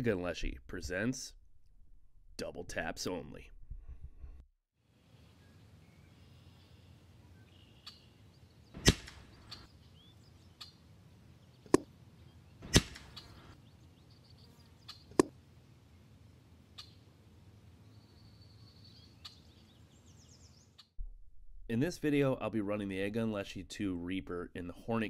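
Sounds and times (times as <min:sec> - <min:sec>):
small birds chirping: 0:05.1 - 0:15.3, 0:16.7 - 0:17.1, 0:17.8 - 0:20.9
air rifle shots: 0:08.8 - 0:09.3, 0:12.6 - 0:13.2.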